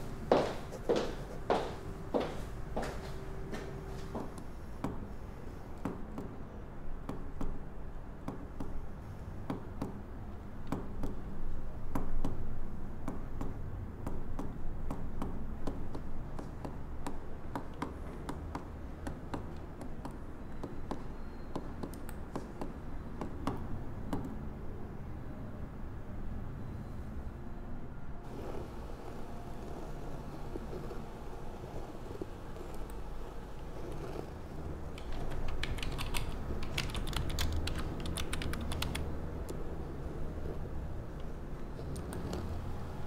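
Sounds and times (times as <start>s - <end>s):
low background hum: 0.0s - 43.0s
computer keyboard typing: 34.9s - 39.1s.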